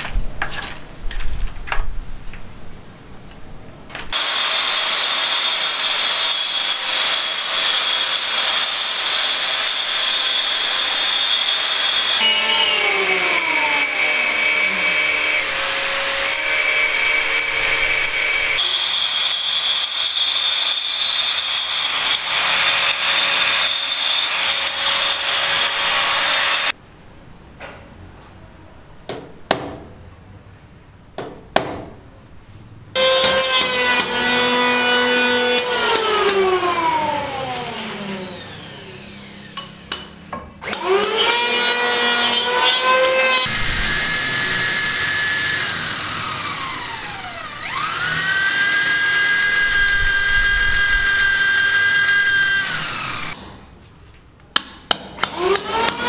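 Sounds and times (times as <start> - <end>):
electric chainsaw cutting timber: 4.1 - 20.1, 21.2 - 26.8, 33.0 - 39.6, 40.7 - 53.4, 55.3 - 56.0
angle grinder cutting concrete: 4.2 - 26.7, 40.7 - 53.4
sharp knocks: 29.1 - 29.9, 31.2 - 32.0.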